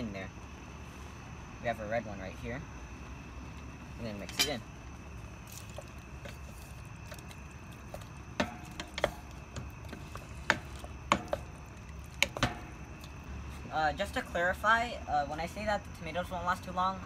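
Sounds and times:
wooden spatula clacking on metal pot: 8.3s - 9.8s, 10.4s - 11.6s, 12.2s - 12.7s.

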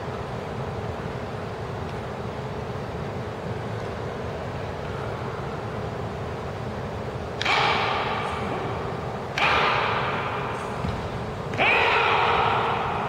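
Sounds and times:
low hum of hall: 0.0s - 13.0s
wooden swords clacking: 7.4s - 13.0s.

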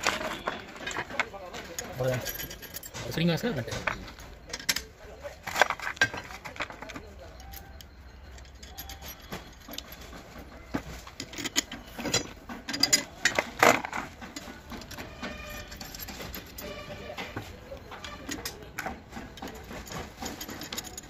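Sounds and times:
metal blades and bolts clinking: 0.0s - 21.0s.

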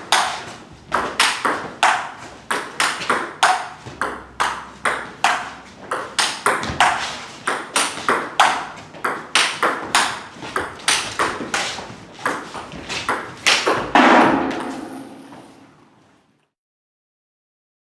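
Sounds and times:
ball bouncing on table: 0.1s - 11.6s, 12.2s - 15.5s
table tennis ball clicking off bats: 0.1s - 11.6s
loud ringing knock: 13.9s - 15.5s.

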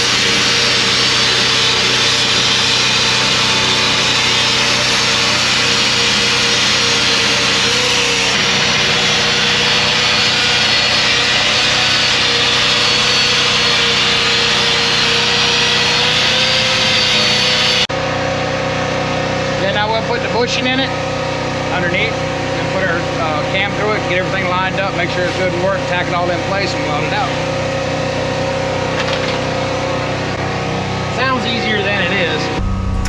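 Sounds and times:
angle grinder grinding steel: 0.0s - 17.9s.

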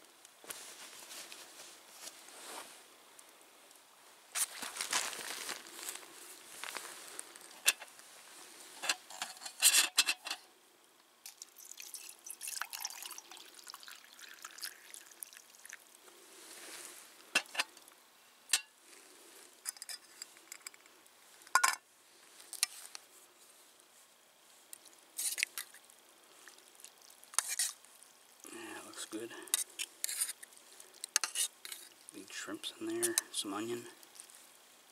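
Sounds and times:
water pouring into a mug: 11.2s - 16.0s
metal cookware clinking: 21.6s - 21.8s.

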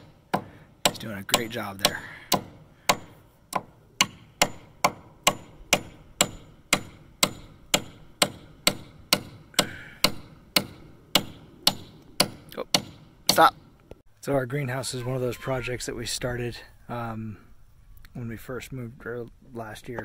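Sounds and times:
hammer driving a nail into wood: 0.0s - 13.5s.

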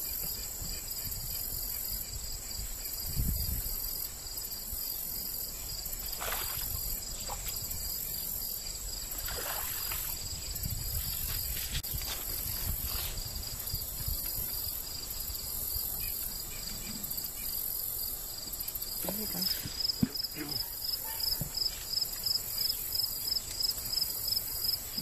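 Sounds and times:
crickets chirring: 0.0s - 25.0s
fish splashing at water surface: 9.2s - 10.2s.

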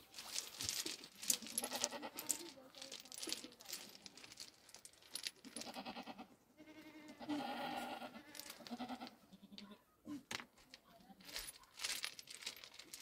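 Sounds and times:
livestock bleating: 5.6s - 9.8s.

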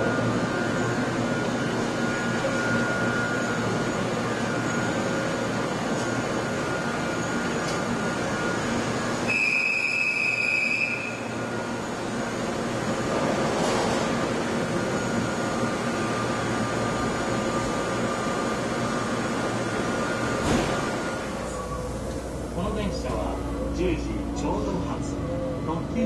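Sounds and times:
electric train humming: 0.0s - 26.0s.

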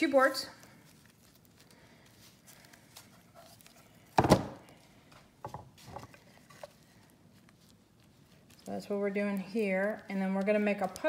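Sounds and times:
wooden panel thunk on table: 4.2s - 4.6s.

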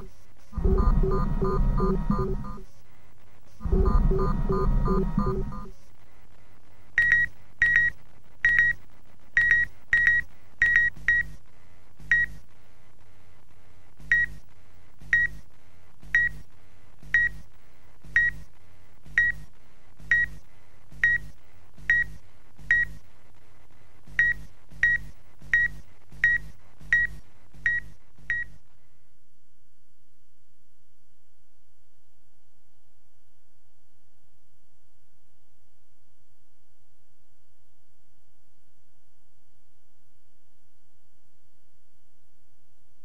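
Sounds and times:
short electronic beeps: 0.0s - 2.6s, 3.6s - 5.7s
steady low hum: 0.0s - 8.2s.

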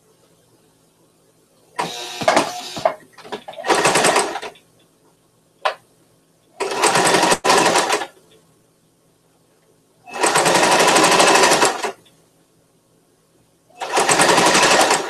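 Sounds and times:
sewing machine stitching: 1.8s - 4.6s, 6.6s - 8.2s, 10.1s - 12.0s, 13.8s - 15.0s.

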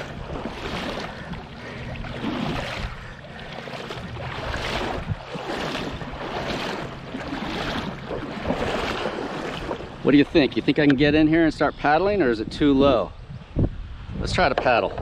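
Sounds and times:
footsteps wading through water: 0.0s - 11.2s.

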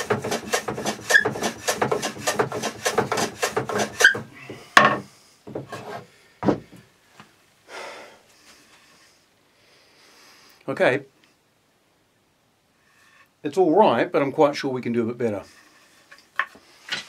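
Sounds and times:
hand plane rasping strokes: 0.0s - 4.7s, 5.5s - 6.1s
wood thumping and rubbing on bench: 0.0s - 6.8s.

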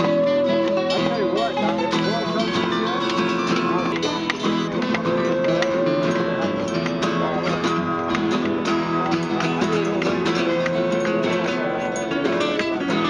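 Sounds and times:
acoustic guitar strumming: 0.0s - 13.0s
bowed musical saw melody: 9.0s - 13.0s.

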